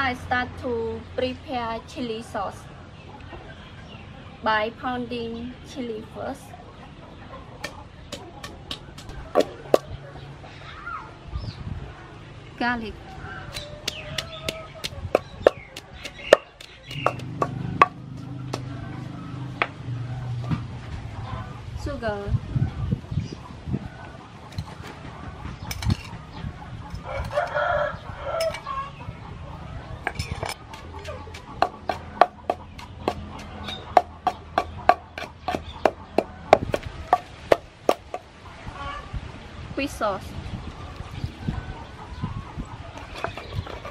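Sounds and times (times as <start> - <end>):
wooden pestle pounding in mortar: 7.6 - 9.9, 13.5 - 18.8, 30.7 - 38.2.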